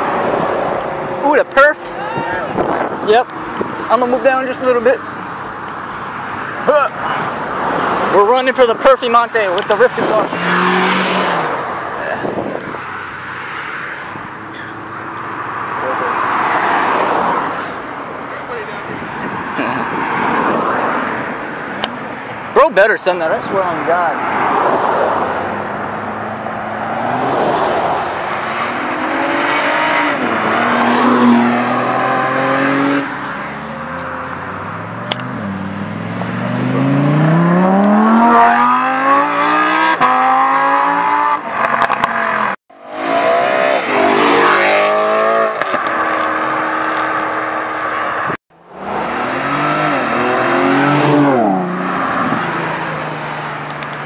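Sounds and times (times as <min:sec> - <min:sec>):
sports car engine revving: 0:09.6 - 0:13.4, 0:24.4 - 0:53.9.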